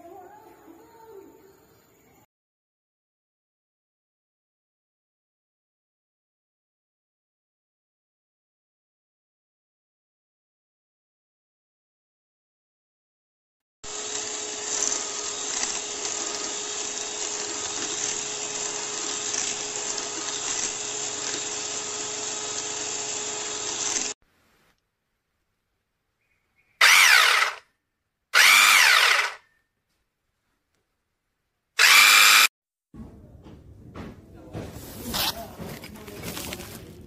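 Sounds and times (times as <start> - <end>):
electric hand mixer beating: 13.8 - 24.2, 26.8 - 27.6, 28.4 - 29.4, 31.8 - 32.5
handheld frother motor: 13.8 - 24.2, 26.8 - 27.6, 28.4 - 29.4, 31.8 - 32.5.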